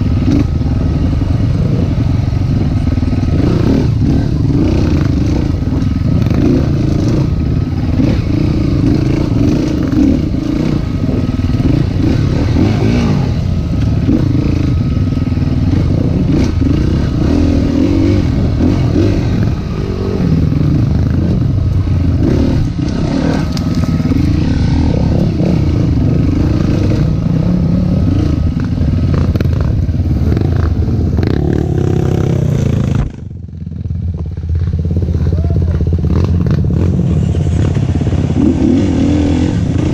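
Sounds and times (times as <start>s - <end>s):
dirt bike engine revving: 0.0s - 33.4s, 34.6s - 39.9s.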